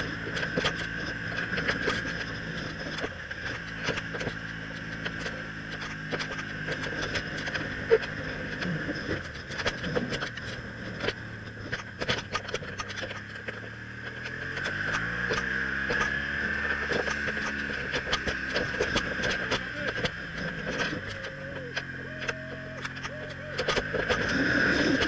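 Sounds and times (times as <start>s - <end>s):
motorcycle engine running: 0.0s - 25.0s
sharp rattling ticks: 0.0s - 25.0s.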